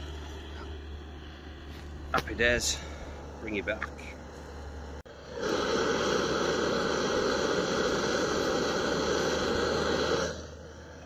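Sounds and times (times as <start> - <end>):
gas stove burner rushing: 0.0 - 11.0
water coming to the boil: 5.1 - 11.0.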